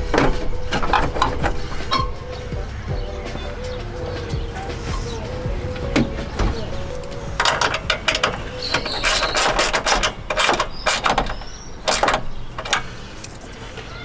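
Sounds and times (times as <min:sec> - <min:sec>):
high squeaks: 0:00.0 - 0:02.6, 0:03.6 - 0:13.0
plastic clips clicking and rattling: 0:07.0 - 0:13.5.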